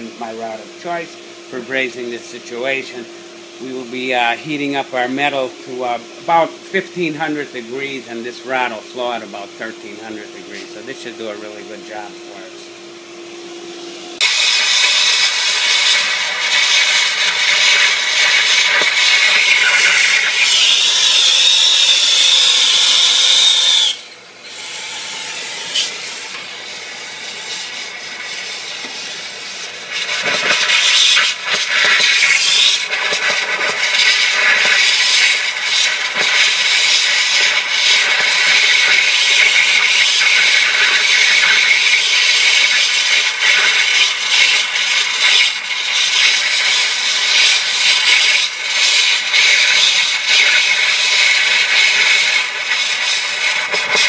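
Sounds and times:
torch flame hissing: 14.1s - 54.0s.

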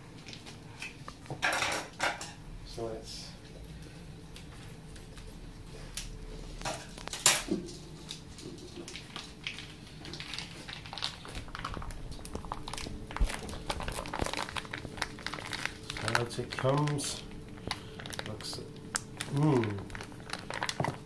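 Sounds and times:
plastic pouch crinkling: 8.9s - 21.0s.

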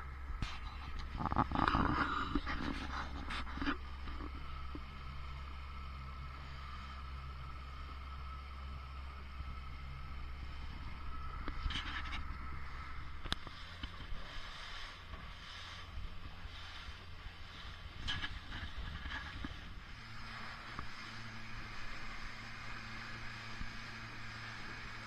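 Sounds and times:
outboard motor running: 0.0s - 25.0s
wind: 0.0s - 25.0s
rushing water: 12.1s - 25.0s.

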